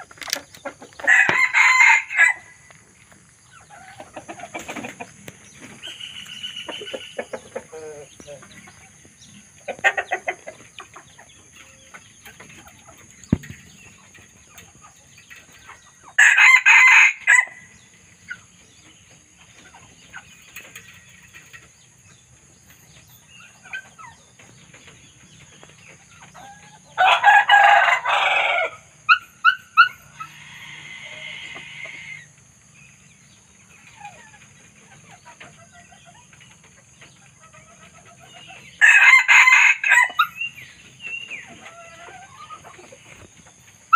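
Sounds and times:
chicken clucks and calls: 0.0s - 43.9s
rooster crowing: 1.0s - 2.6s, 16.2s - 17.6s, 27.0s - 28.8s, 38.8s - 40.4s.

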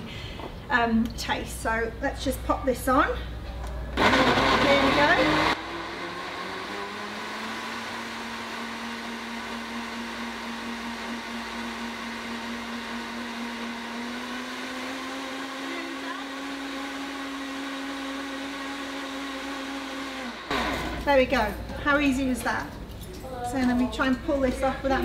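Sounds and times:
blender motor running: 4.0s - 21.1s.

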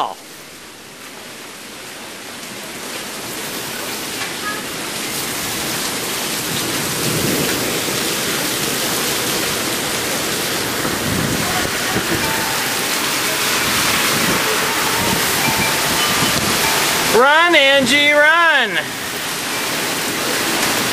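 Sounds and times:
heavy rain pouring: 0.0s - 20.9s
gusty wind: 10.2s - 18.2s.

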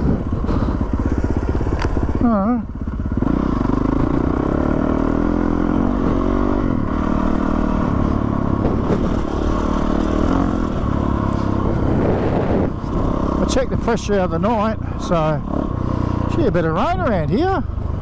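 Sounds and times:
dirt bike engine revving: 0.0s - 17.6s.

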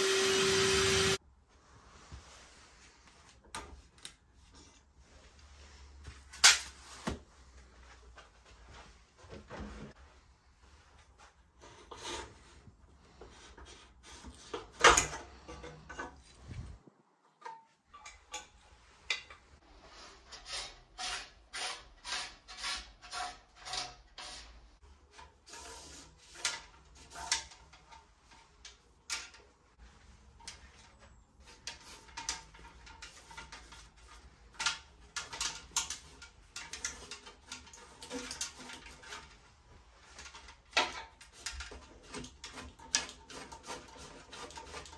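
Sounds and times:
clicks and knocks of bicycle parts: 13.5s - 16.5s, 17.2s - 19.6s, 26.2s - 44.9s.

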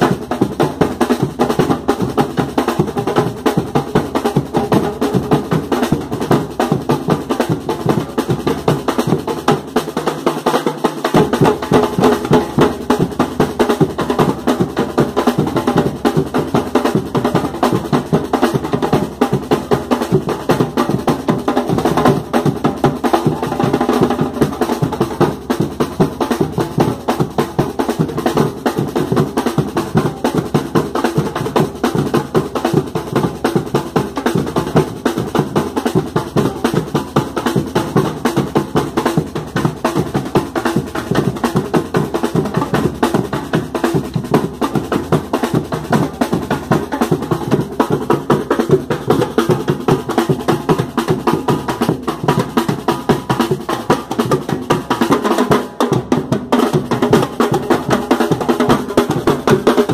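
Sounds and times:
snare drums played with sticks: 0.0s - 59.9s.

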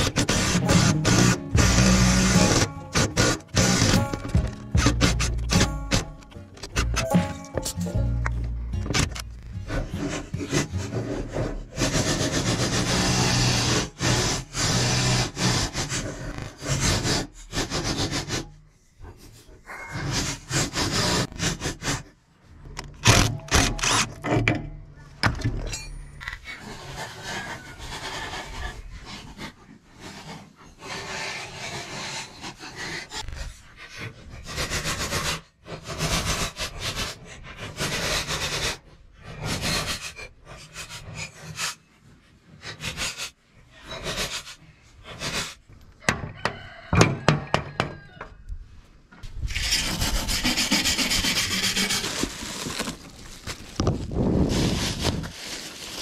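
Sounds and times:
hand tool scraping steel deck: 0.0s - 18.6s, 19.9s - 27.7s, 49.2s - 53.8s
bubble wrap crinkling: 51.2s - 56.0s.

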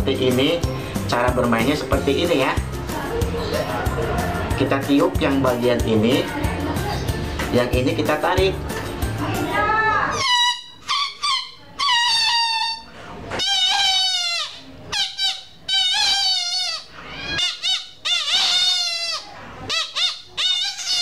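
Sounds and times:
balloon rubber squealing wails: 10.1s - 21.0s.

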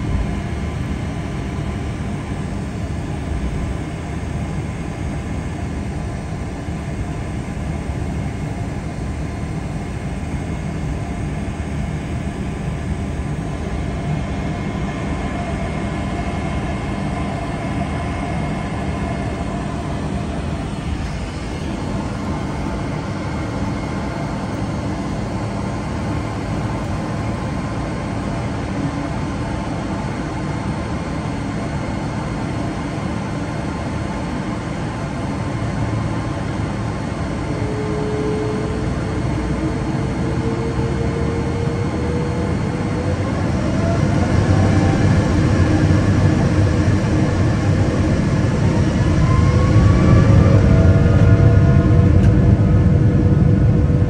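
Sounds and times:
faint whine: 0.0s - 54.0s
jet engines low rumble: 0.0s - 54.0s.

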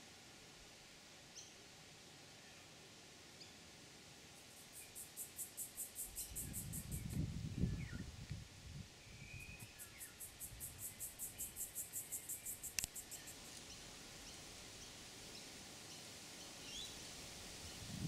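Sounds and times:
faint outdoor hiss: 0.0s - 18.0s
insect chirring: 4.4s - 8.1s, 9.1s - 15.0s.

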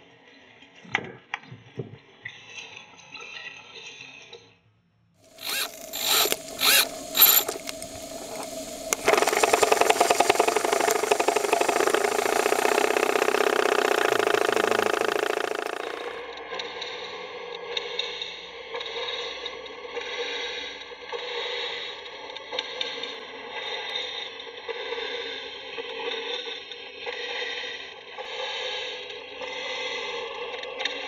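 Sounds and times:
miniature steam engine running: 5.3s - 16.2s.

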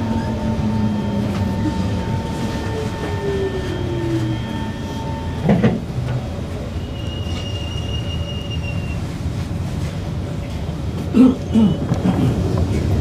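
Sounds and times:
train wheels rumbling on rails: 0.0s - 13.0s
high wheel squeal: 6.6s - 9.2s.

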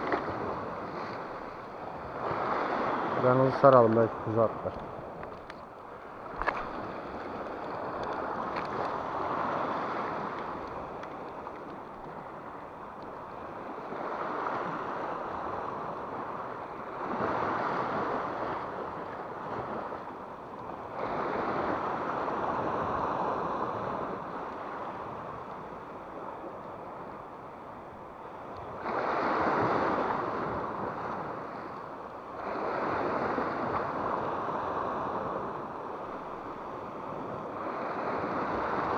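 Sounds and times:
waves washing against rocks: 0.0s - 20.1s.

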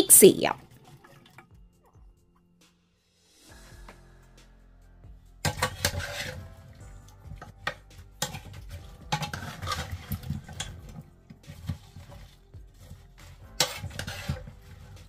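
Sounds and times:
spoon clinking and scraping pot: 5.4s - 6.5s, 7.2s - 15.0s.

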